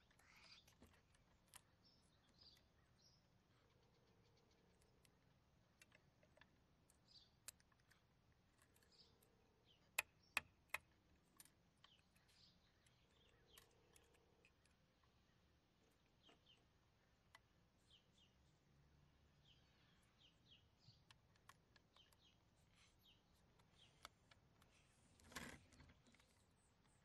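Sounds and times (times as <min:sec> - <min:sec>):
toy truck clicks and taps: 0:05.8 - 0:08.0, 0:21.0 - 0:22.3.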